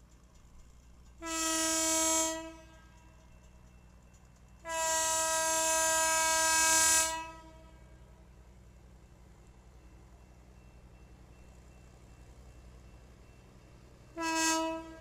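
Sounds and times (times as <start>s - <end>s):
rail car horn blasts: 1.2s - 3.2s, 4.6s - 8.1s, 14.1s - 15.0s.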